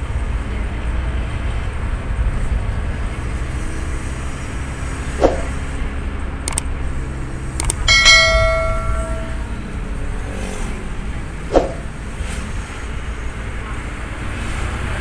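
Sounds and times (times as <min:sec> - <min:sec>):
car road and engine rumble: 0:00.0 - 0:08.8, 0:09.4 - 0:15.0
short thump: 0:05.2 - 0:05.6, 0:11.5 - 0:11.9
clicks: 0:06.5 - 0:06.7, 0:07.6 - 0:09.4
ringing bell chime: 0:07.8 - 0:09.6.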